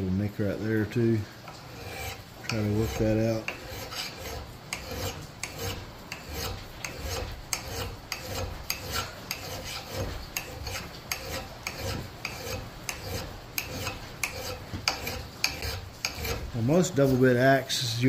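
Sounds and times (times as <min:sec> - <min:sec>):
file rasping on axe blade: 0:01.5 - 0:17.2.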